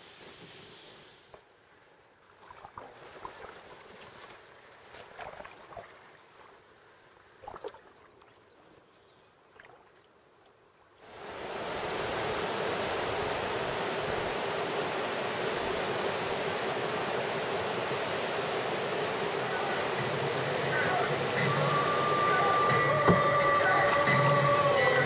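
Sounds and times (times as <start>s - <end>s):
paddle splashes: 2.3s - 8.7s, 9.5s - 10.5s, 11.4s - 25.0s
river rapids rushing: 11.1s - 25.0s.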